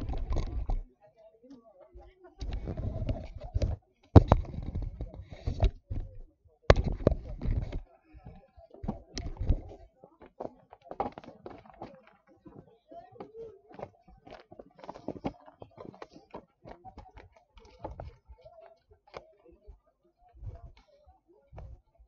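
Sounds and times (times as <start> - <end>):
faint voices: 0.0 - 22.0
clicks and knocks: 2.4 - 7.9.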